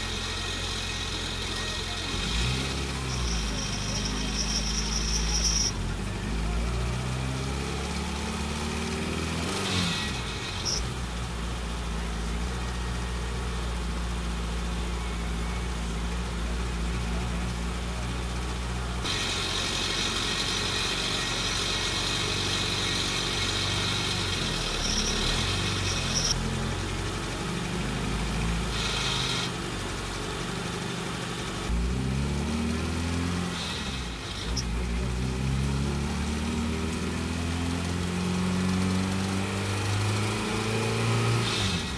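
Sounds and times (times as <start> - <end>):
gear change: 0.0 - 29.8
car engine running while driving: 0.0 - 41.9.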